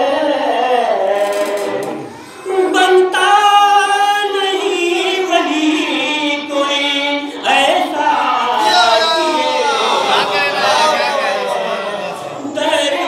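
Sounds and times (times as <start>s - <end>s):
man singing unaccompanied: 2.7s - 11.7s.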